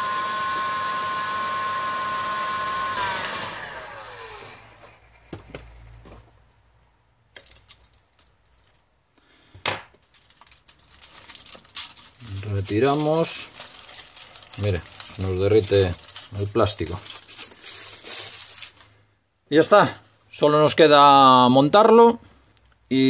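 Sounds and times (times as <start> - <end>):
hot air gun whine: 0.0 - 4.9
fan winding down: 0.0 - 5.0
aluminium foil rustling: 7.4 - 8.9, 10.0 - 19.0.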